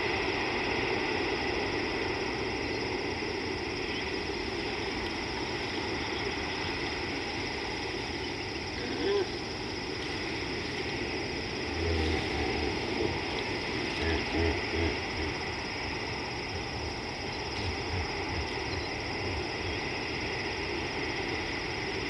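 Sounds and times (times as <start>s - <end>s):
insects droning: 0.0s - 22.0s
river water rushing: 0.0s - 22.0s
low grunting pulses: 11.4s - 16.7s, 17.5s - 20.1s.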